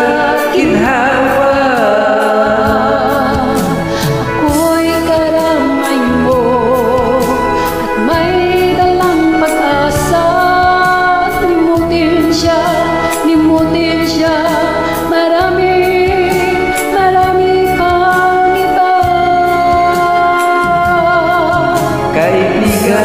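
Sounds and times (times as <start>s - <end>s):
instrumental pop ballad backing track: 0.0s - 23.0s.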